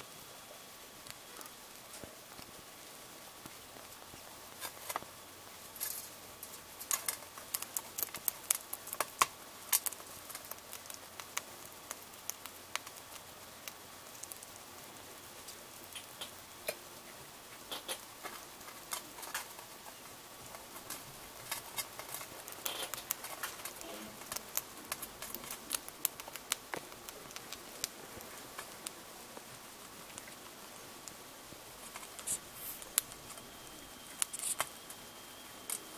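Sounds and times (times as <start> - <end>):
hamster crunching shell: 4.0 - 5.1, 5.7 - 14.7, 17.6 - 33.5, 34.1 - 34.9.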